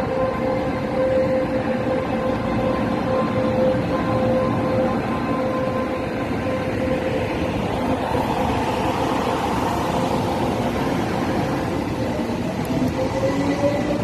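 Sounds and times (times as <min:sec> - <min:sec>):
train traction inverter whining: 0:00.0 - 0:14.0
wheels rumbling on rail: 0:00.0 - 0:14.0.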